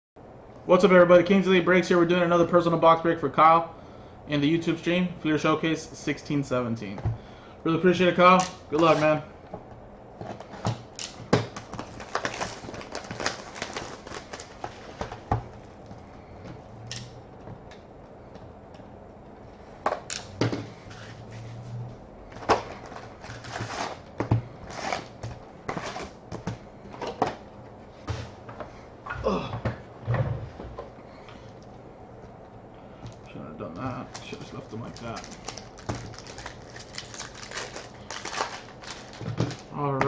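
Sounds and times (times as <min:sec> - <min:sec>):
foil packs clicking and crackling: 0:10.2 - 0:15.8, 0:22.5 - 0:26.2, 0:33.8 - 0:40.0
shrink wrap crinkling: 0:10.2 - 0:15.8, 0:33.7 - 0:39.8.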